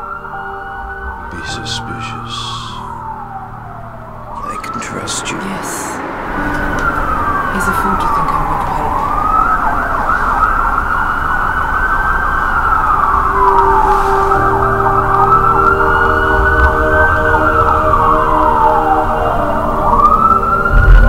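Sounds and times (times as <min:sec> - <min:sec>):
emergency siren wailing: 0:00.0 - 0:21.0
warbling siren tone: 0:00.0 - 0:21.0.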